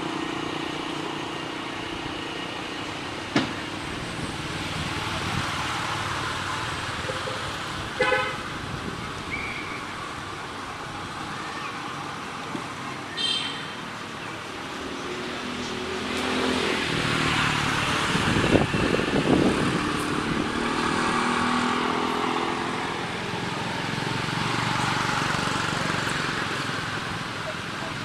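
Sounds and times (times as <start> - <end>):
traffic noise: 0.0 - 28.0
vehicle engine passing: 15.4 - 27.2.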